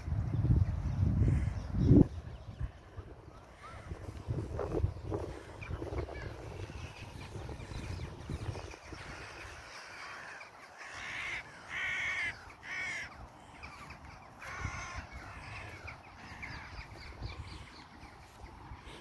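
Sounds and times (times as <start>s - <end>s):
crows cawing: 3.4s - 4.1s, 5.2s - 18.3s.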